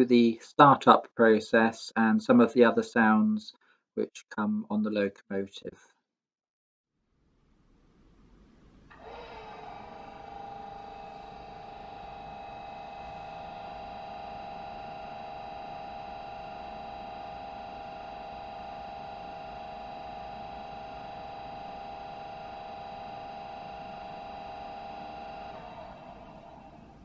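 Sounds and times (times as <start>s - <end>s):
diesel engine drone: 8.4s - 27.0s.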